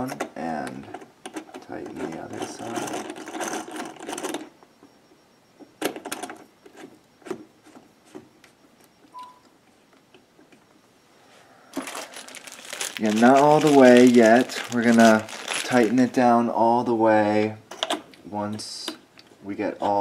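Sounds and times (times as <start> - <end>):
handling rustle: 11.7 - 16.2.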